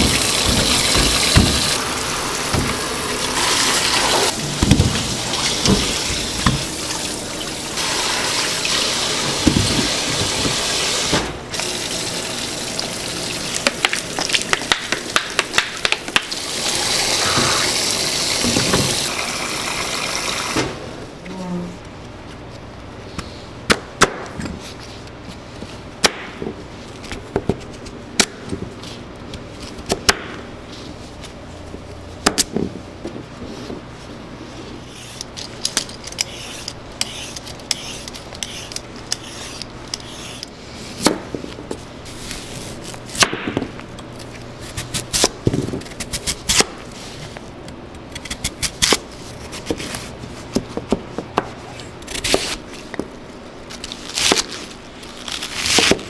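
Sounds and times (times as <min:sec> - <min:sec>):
vegetable peeler scraping: 0:36.0 - 0:40.5.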